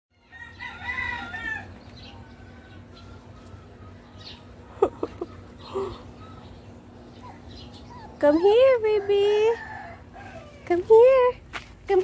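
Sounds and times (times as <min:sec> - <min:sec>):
rooster crowing: 0:00.2 - 0:03.9, 0:08.8 - 0:10.6.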